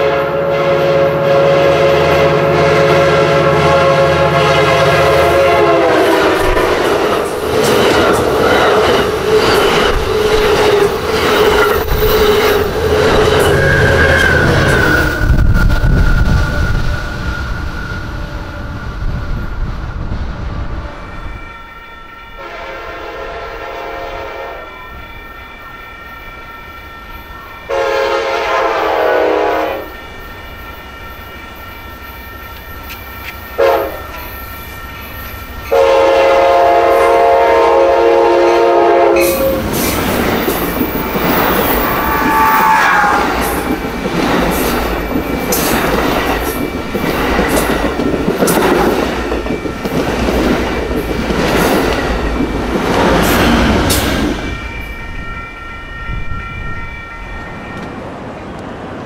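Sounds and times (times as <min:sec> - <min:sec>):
locomotive air horn: 0:00.0 - 0:06.8, 0:11.5 - 0:16.8, 0:22.3 - 0:24.8, 0:27.7 - 0:29.9, 0:33.6 - 0:34.3, 0:35.6 - 0:40.0, 0:40.8 - 0:43.8
train wheels clattering on rails: 0:05.8 - 0:18.0, 0:38.4 - 0:55.2.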